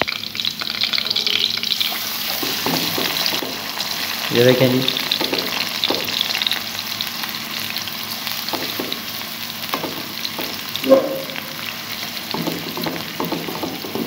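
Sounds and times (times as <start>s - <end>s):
onions sizzling in oil: 0.0s - 14.0s
spatula knocking on a pan: 2.4s - 3.6s, 5.1s - 6.2s, 8.5s - 9.1s, 9.7s - 11.6s, 12.3s - 14.0s
spatula scraping a pan: 10.8s - 11.7s.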